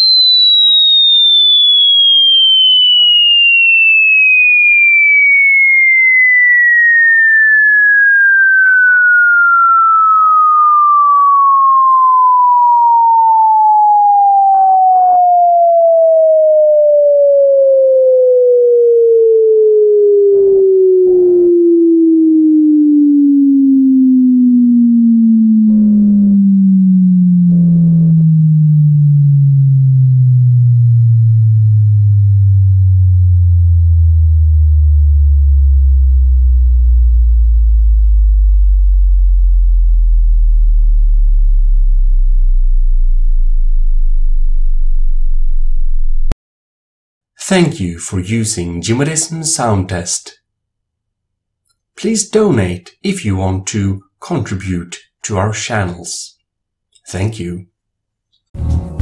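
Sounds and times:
sine wave tone sweeping down: 0:00.0 - 0:46.4.

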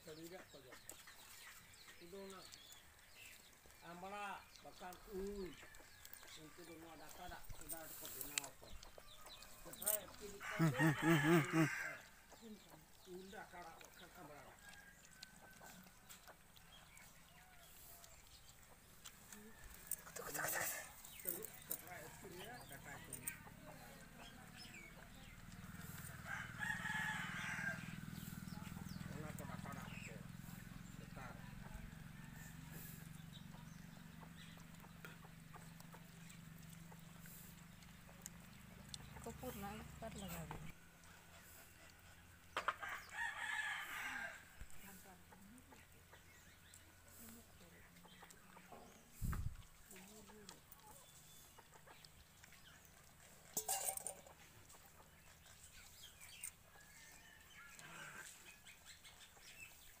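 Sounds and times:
puppies chewing and lapping: 0:00.0 - 0:43.2, 0:44.4 - 1:00.0
puppies chirping calls: 0:27.8 - 0:42.6.

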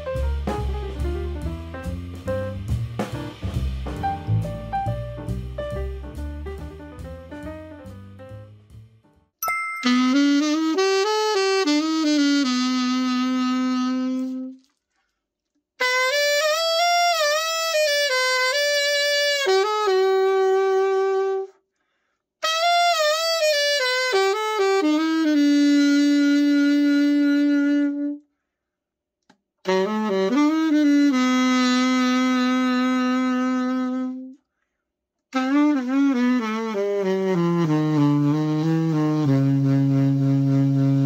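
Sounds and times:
alto saxophone phrases: 0:10.0 - 0:14.6, 0:15.8 - 0:21.6, 0:22.4 - 0:28.2, 0:29.7 - 0:34.4, 0:35.4 - 0:41.0.

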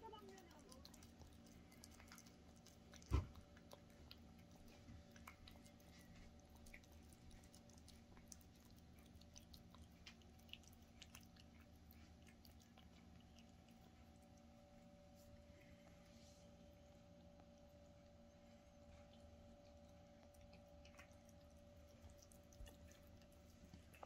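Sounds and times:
cat chewing and licking: 0:00.0 - 0:24.0.

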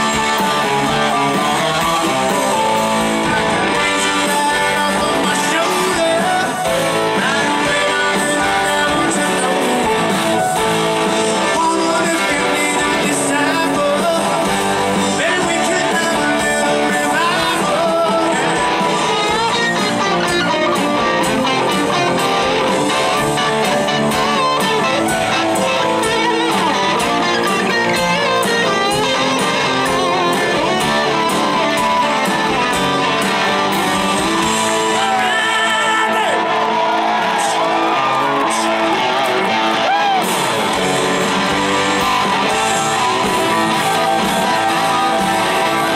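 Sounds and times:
drum kit beat: 0:00.0 - 0:35.8, 0:36.5 - 0:45.9
person singing: 0:00.0 - 0:36.4
distorted electric guitars: 0:00.0 - 0:45.9.

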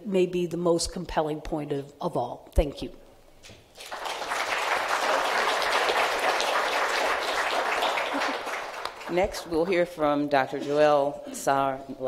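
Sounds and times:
audience applauding: 0:03.8 - 0:09.6.

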